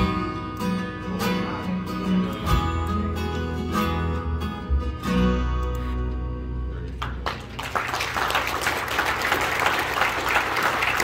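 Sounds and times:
audience applause: 7.0 - 11.0.

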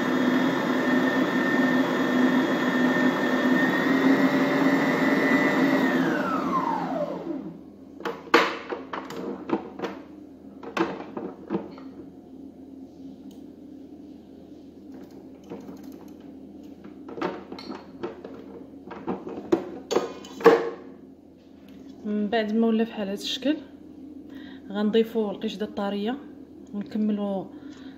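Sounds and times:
stand mixer motor whining: 0.0 - 7.6.

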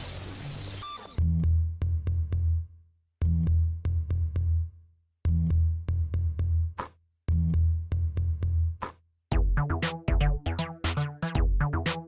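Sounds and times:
electronic music drum-machine beat: 5.3 - 12.0.

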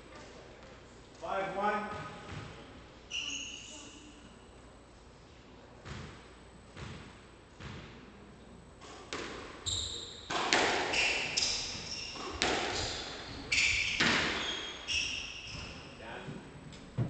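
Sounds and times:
squash ball hitting rackets and walls: 1.7 - 2.8, 5.8 - 8.0, 8.8 - 16.4
court shoes squeaking on wooden floor: 1.9 - 4.0, 9.2 - 16.4.

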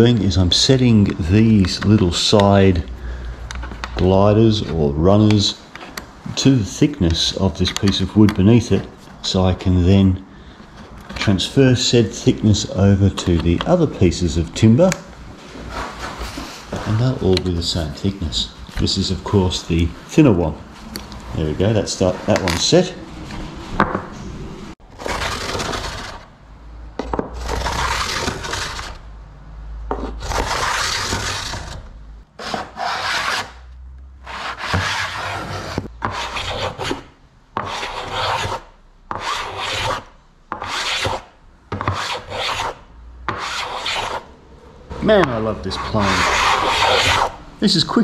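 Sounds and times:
hand plane shaving wood: 29.9 - 31.8, 32.4 - 33.6, 34.2 - 37.0, 37.6 - 38.6, 39.2 - 40.0, 41.8 - 44.2, 45.3 - 47.3.

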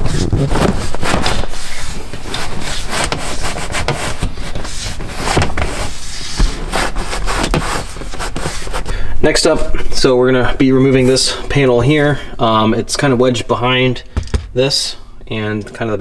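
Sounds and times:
leather rubbing and scraping: 0.0 - 8.9.

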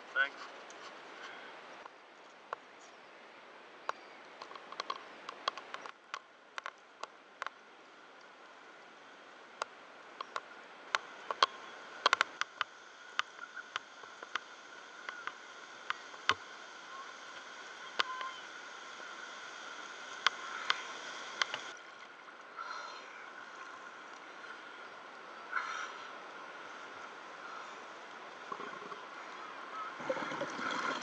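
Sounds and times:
rushing water noise: 6.3 - 31.0
steady hiss: 7.6 - 31.0.

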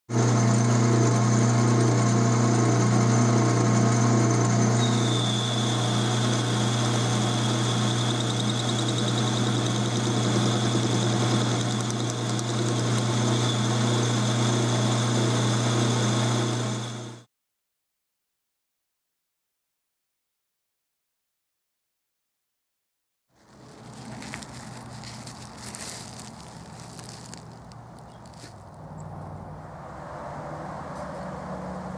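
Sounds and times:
metal lathe humming: 0.2 - 17.2
thin high whine: 4.8 - 17.3.

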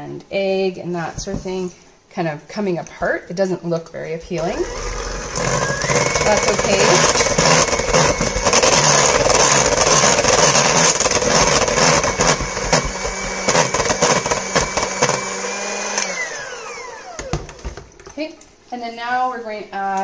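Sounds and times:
electric hand mixer running: 4.3 - 17.8.

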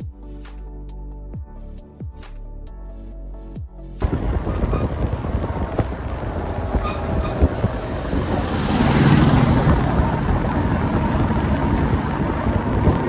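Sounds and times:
motorcycle engine running: 4.0 - 13.0
road and wind noise: 4.0 - 13.0.

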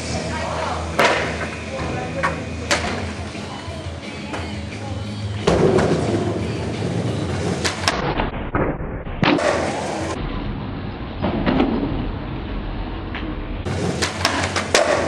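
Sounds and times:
skateboard wheels rolling on concrete: 0.0 - 8.6, 9.2 - 15.0
skateboard clacking: 0.5 - 3.4, 5.4 - 8.0, 9.2 - 10.2, 13.6 - 15.0.

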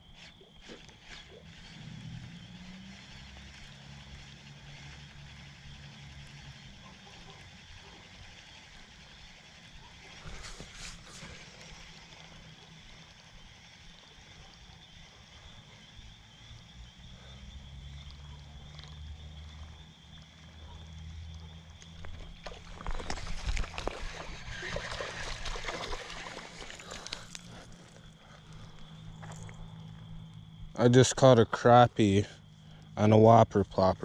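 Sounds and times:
water splashing and sloshing: 22.1 - 28.0.

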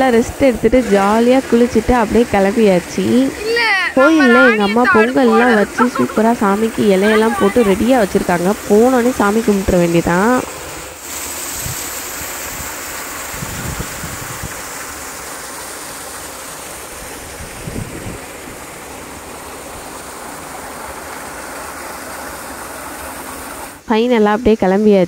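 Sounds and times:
water pouring into a tank: 0.0 - 23.8
wind thumps on microphone: 17.4 - 18.2.

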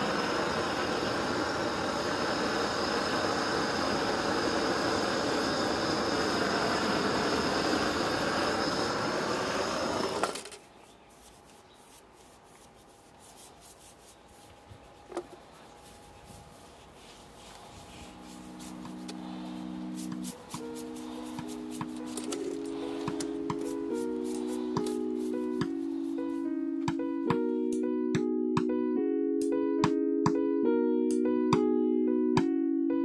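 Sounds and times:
gas torch hissing: 0.0 - 10.4, 17.5 - 26.2
paintbrush rubbing on metal: 10.6 - 23.0, 23.6 - 26.4
soft music with held tones: 15.8 - 33.0.

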